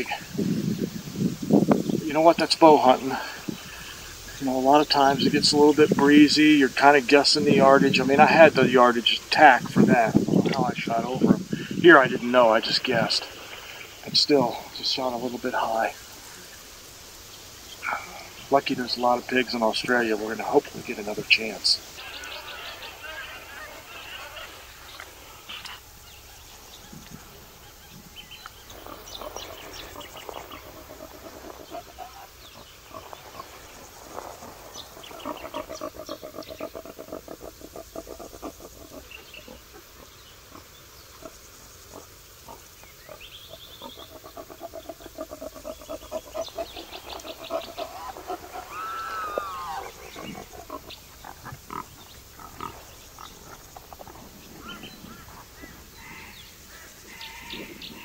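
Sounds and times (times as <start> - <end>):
rapid rasping animal calls: 17.7 - 58.0
arched animal call: 20.4 - 28.1, 34.4 - 58.0.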